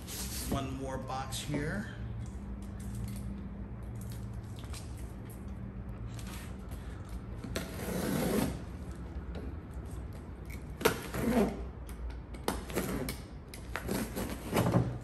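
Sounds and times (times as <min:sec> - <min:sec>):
box cutter slicing packing tape: 0:12.4 - 0:15.0.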